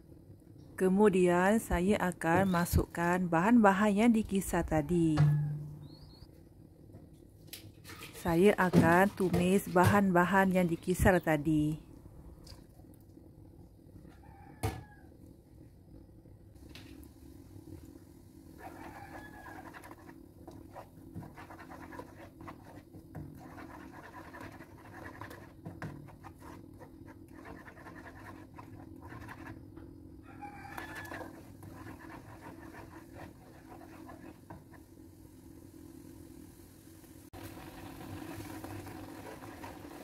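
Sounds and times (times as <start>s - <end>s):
plastic spatula scraping a wok: 18.6s - 29.8s, 30.6s - 34.9s, 37.8s - 40.0s.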